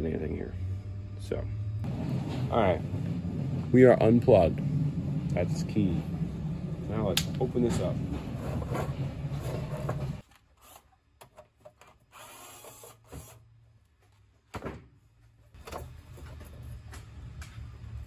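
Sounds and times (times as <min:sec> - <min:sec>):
power drill running: 0:12.1 - 0:13.4.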